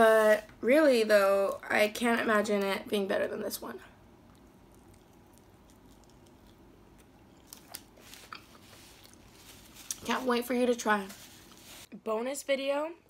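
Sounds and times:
crisp pastry crunches: 4.3s - 10.2s.

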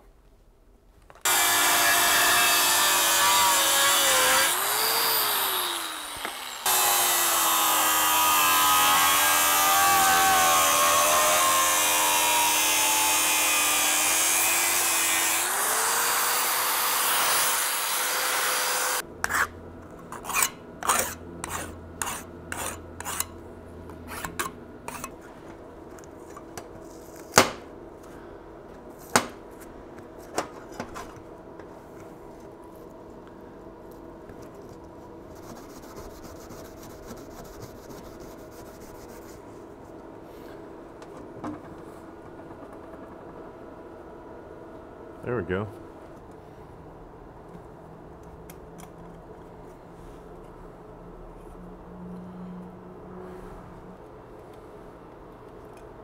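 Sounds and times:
angle grinder cutting metal: 1.3s - 19.0s
razor blade scraping tape: 20.1s - 23.3s.

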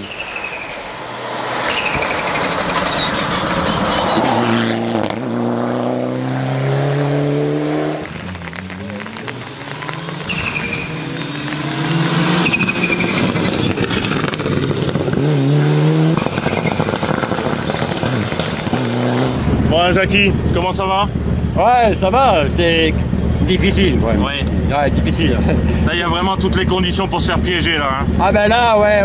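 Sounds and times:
car engine accelerating hard: 0.4s - 29.0s
brief high squeal: 1.7s - 4.4s.

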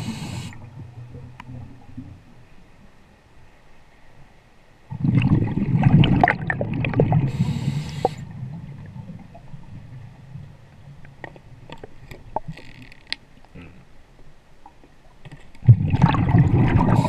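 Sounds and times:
exhaled bubbles gurgling underwater: 4.9s - 10.6s, 15.6s - 17.0s.

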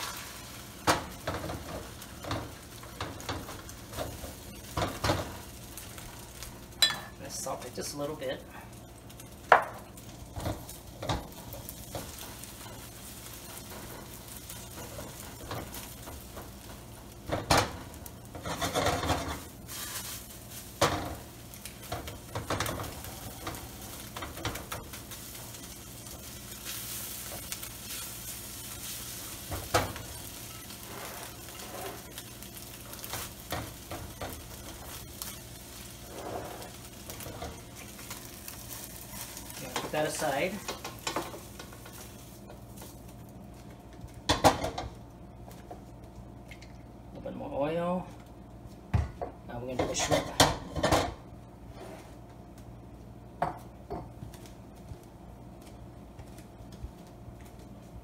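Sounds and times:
eggs sizzling in a wok: 0.0s - 58.0s
spatula scraping and knocking pan: 9.5s - 42.6s.

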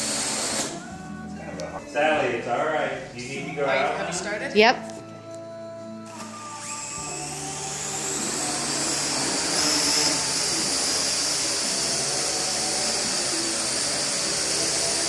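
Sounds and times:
drone rotors whirring: 6.6s - 15.0s.

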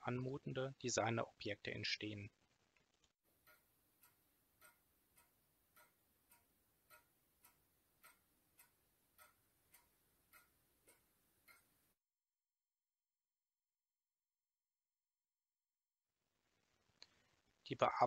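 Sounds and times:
pendulum clock ticking: 3.3s - 12.0s.

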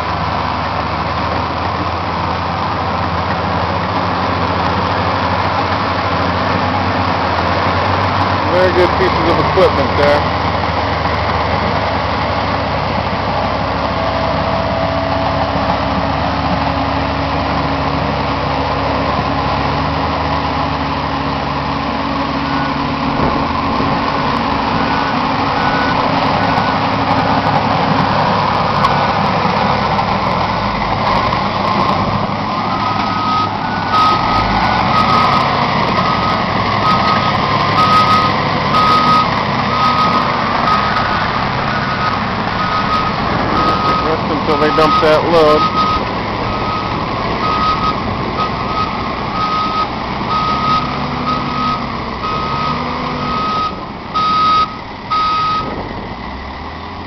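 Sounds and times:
diesel engine running under load: 0.0s - 57.0s
reversing alarm beeping: 22.4s - 22.9s, 24.7s - 26.9s, 32.6s - 55.7s.

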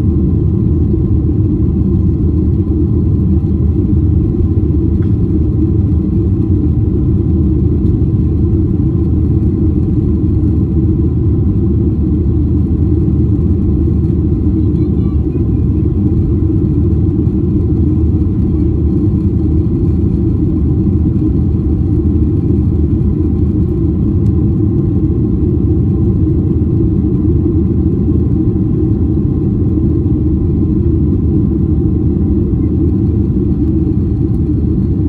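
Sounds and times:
jet engines in cabin: 0.0s - 35.0s.

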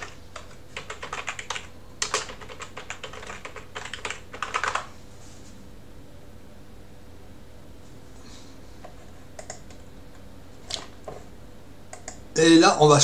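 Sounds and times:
typing on computer keyboard: 0.0s - 4.9s, 8.9s - 9.8s, 11.9s - 12.2s.

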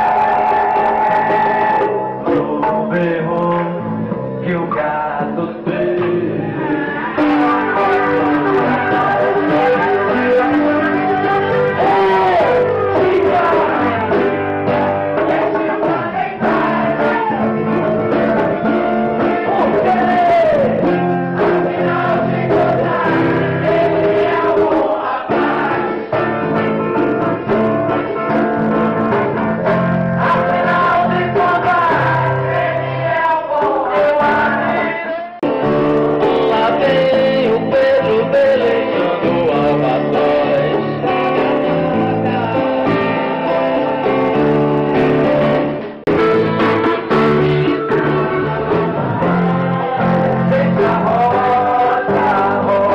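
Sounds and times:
song with singing voices: 0.0s - 52.9s.

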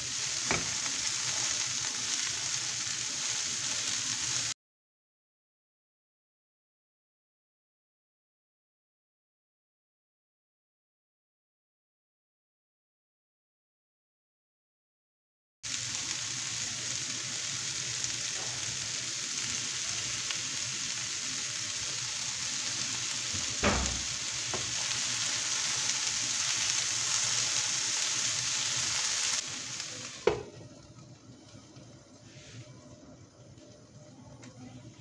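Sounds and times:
vegetables sizzling in a pan: 0.0s - 4.6s, 15.6s - 35.0s.

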